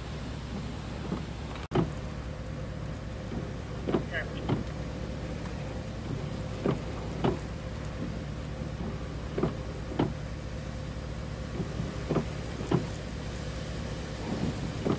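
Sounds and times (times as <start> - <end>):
vehicle idling rumble: 0.0 - 14.9
short knocks: 3.3 - 4.8.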